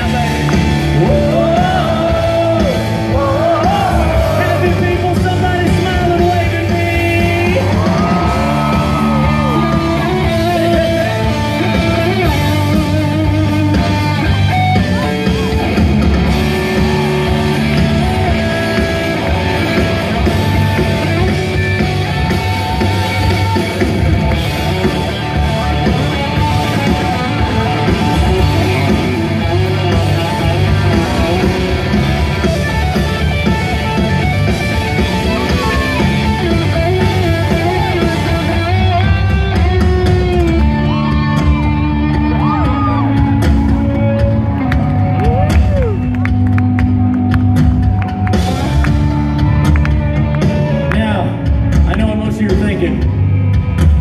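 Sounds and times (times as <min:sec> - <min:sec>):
man singing: 0:00.0 - 0:08.7
drum kit: 0:00.0 - 0:54.0
electric guitar: 0:00.0 - 0:54.0.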